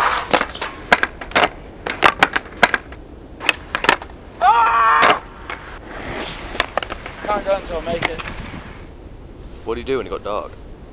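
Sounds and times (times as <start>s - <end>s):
skateboard clacking on concrete: 0.0s - 4.2s, 6.6s - 8.4s
person shouting: 4.4s - 5.3s.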